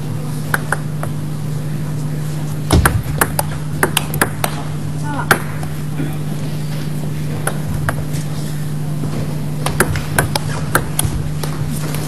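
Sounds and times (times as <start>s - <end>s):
table tennis ball clicking: 2.8s - 4.6s, 9.6s - 11.1s.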